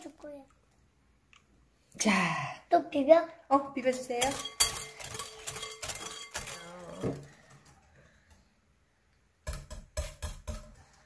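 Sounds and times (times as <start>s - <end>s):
utensils clinking against a bowl: 3.8s - 8.0s.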